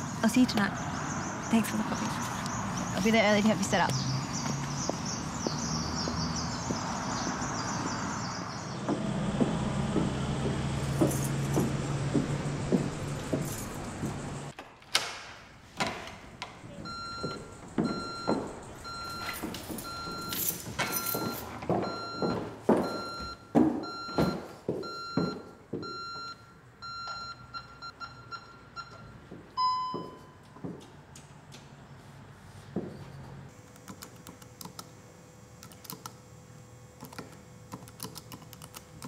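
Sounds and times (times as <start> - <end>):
street traffic hum: 0.0 - 14.6, 15.4 - 24.1, 24.8 - 33.6
footsteps and knocks: 2.0 - 15.0, 15.7 - 26.4, 28.8 - 33.5.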